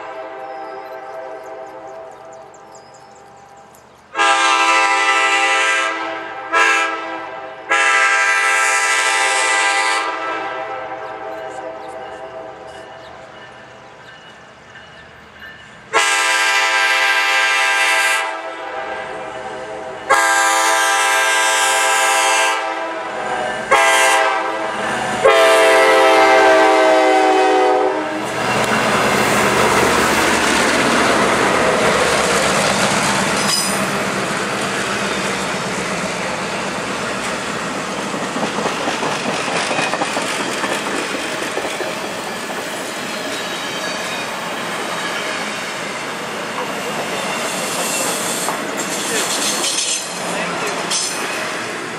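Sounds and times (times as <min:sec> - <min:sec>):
train air horn blasts: 0:00.0 - 0:02.5, 0:04.2 - 0:12.8, 0:15.9 - 0:28.8
train rumbling past: 0:00.0 - 0:51.9
wheels clacking over rail joints: 0:28.3 - 0:45.5, 0:46.4 - 0:51.7.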